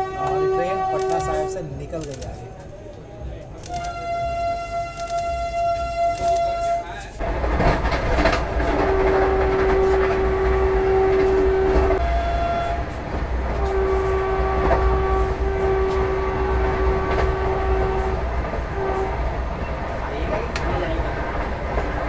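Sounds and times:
train horn blowing: 0.0s - 1.7s, 3.6s - 7.2s, 8.6s - 19.5s
low rumble of train: 0.0s - 22.0s.

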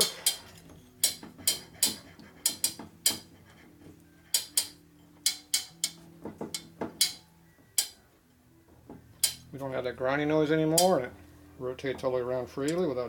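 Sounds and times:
sharp metallic clicks and taps: 0.0s - 8.0s, 8.9s - 9.5s.

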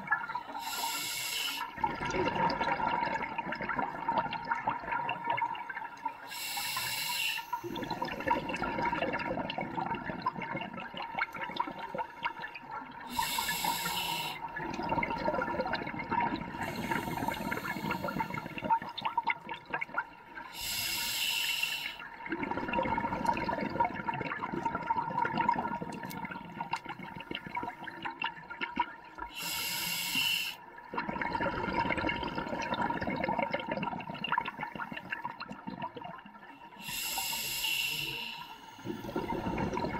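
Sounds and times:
hissing regulator inhalations: 0.5s - 1.8s, 6.2s - 8.5s, 11.6s - 14.6s, 16.5s - 18.8s, 20.5s - 22.0s, 29.3s - 30.6s, 36.6s - 39.9s
exhaled bubbles burbling: 1.7s - 6.8s, 7.5s - 20.2s, 22.1s - 29.4s, 30.8s - 37.5s, 38.7s - 39.9s.

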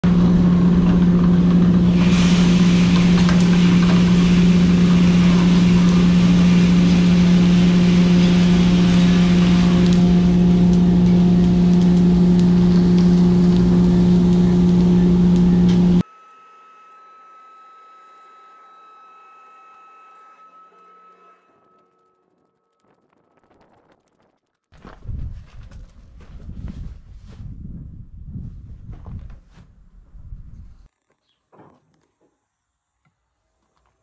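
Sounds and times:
coffee roaster motor hum: 0.0s - 22.5s.

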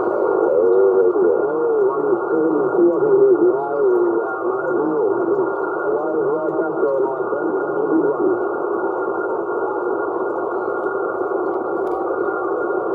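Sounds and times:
garbled warbling radio signals: 0.0s - 8.4s
radio static hiss: 0.0s - 12.9s.

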